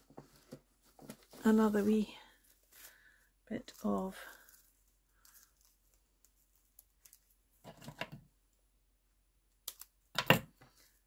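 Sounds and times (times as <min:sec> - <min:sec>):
paper raffia rustling: 0:00.0 - 0:07.6.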